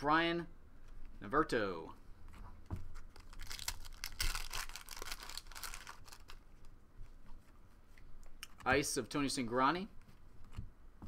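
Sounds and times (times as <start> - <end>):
foil wrapper crinkling and tearing: 3.1 - 6.4.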